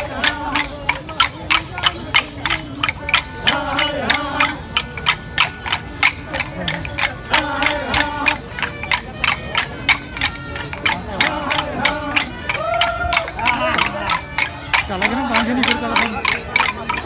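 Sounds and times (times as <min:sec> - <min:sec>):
wavering melody: 0:00.0 - 0:17.0
wooden sticks clacking: 0:00.0 - 0:17.0.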